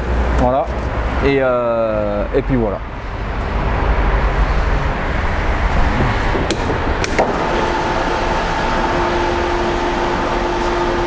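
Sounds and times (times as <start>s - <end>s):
steady hum: 0.0s - 11.0s
vehicle lift mechanical noise: 3.0s - 11.0s.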